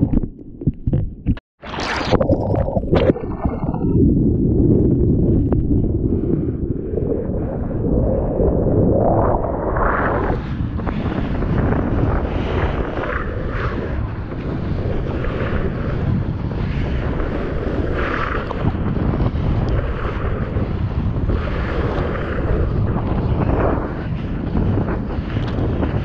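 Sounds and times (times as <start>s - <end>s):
water rushing and splashing: 1.6s - 4.0s
wind buffeting microphone: 2.1s - 26.0s.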